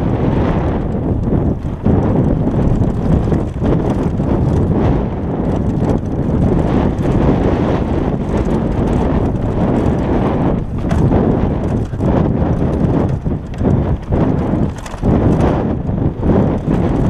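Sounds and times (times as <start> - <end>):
bike rattling: 0.0 - 17.0
tyres rumbling on dirt trail: 0.0 - 17.0
wind buffeting microphone: 0.0 - 17.0.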